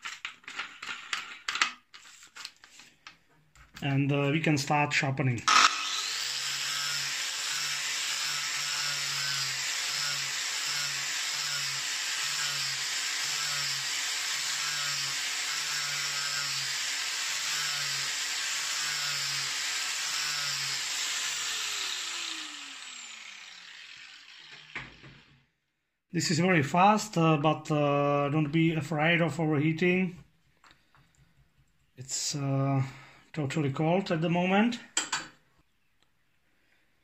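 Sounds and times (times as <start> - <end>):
angle grinder sanding metal: 5.5 - 25.3.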